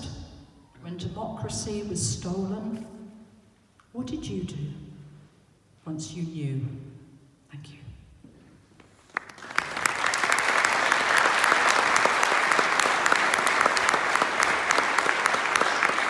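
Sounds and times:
audience applause: 9.1 - 16.0.

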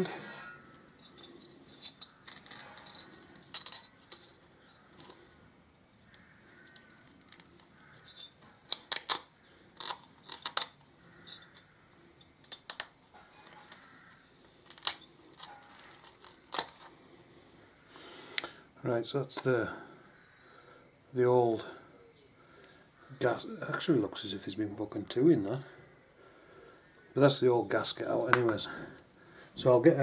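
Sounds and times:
metal pick scraping and clicking: 0.4 - 5.2, 6.1 - 16.9.

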